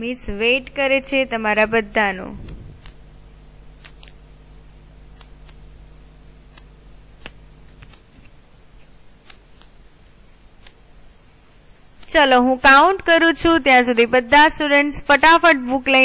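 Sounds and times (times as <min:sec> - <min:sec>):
low steady hum: 0:00.0 - 0:16.0
small clicks: 0:02.4 - 0:03.0, 0:03.8 - 0:04.2, 0:05.1 - 0:05.7, 0:06.4 - 0:09.8, 0:10.6 - 0:10.8.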